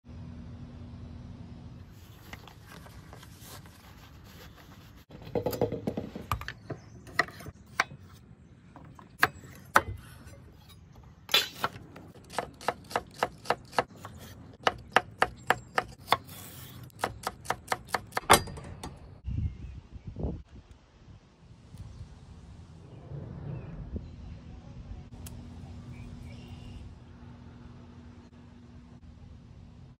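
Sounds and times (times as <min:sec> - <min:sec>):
knife chopping on wooden board: 0:11.6 - 0:18.2.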